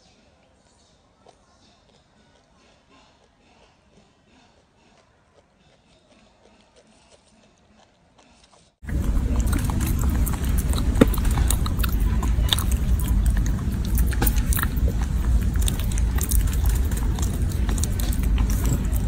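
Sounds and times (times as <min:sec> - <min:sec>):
monkey chewing fruit crunching: 0:01.2 - 0:19.0
steady low rumble: 0:08.8 - 0:19.0.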